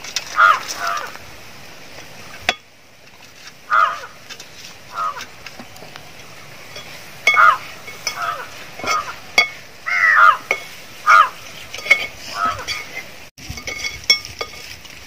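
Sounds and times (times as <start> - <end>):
crows cawing: 0.3 - 1.2, 3.7 - 4.2, 4.9 - 5.4, 7.3 - 11.4, 12.3 - 12.8
wire strainer scraping steel pot: 2.4 - 5.4, 6.7 - 15.0.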